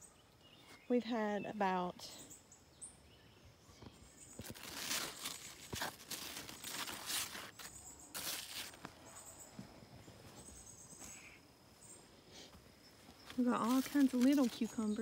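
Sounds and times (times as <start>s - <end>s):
leaves rustling: 3.8s - 15.0s
soft footsteps: 3.8s - 15.0s.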